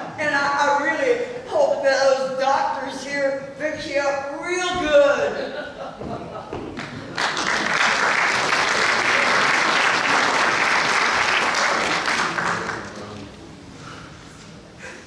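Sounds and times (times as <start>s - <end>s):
audience applauding: 6.8s - 13.3s.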